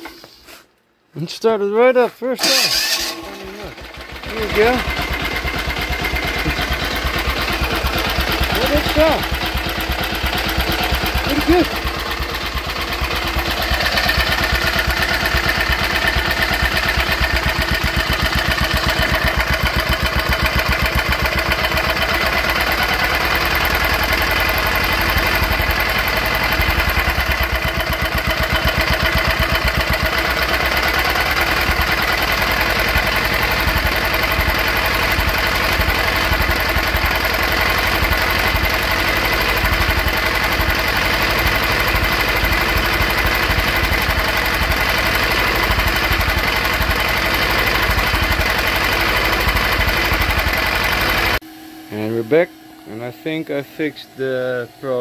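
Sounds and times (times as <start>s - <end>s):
engine running steadily: 2.4s - 55.0s.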